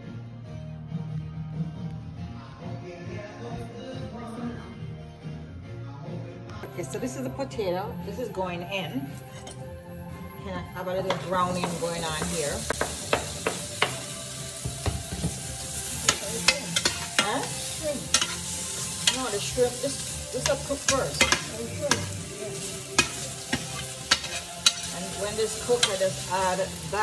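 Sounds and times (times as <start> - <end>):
potatoes sizzling in a pan: 10.8 - 27.0
metal utensil clinking on pan: 16.1 - 19.5, 20.4 - 22.2, 23.0 - 26.2.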